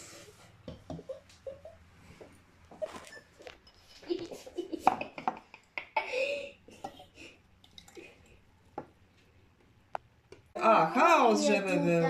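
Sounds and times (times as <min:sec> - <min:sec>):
children's voices: 0:10.6 - 0:12.0.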